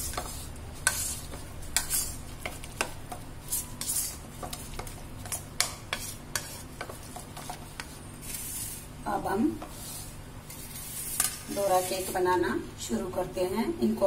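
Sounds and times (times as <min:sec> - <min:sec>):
spoon scraping swishes: 0:00.0 - 0:09.0, 0:09.6 - 0:12.3.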